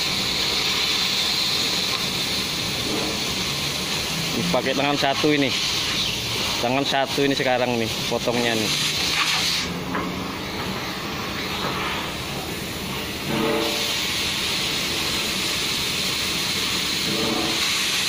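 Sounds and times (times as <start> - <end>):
cutting torch hissing: 0.0 - 18.0.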